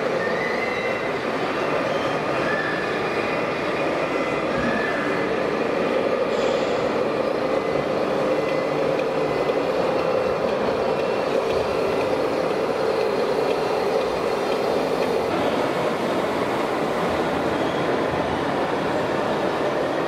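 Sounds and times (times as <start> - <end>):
toy truck mechanical running: 7.5 - 17.5.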